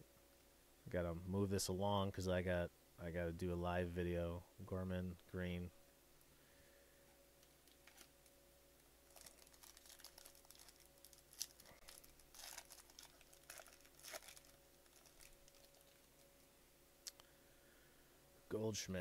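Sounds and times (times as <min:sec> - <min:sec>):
foil wrapper crinkling: 0:09.0 - 0:16.4.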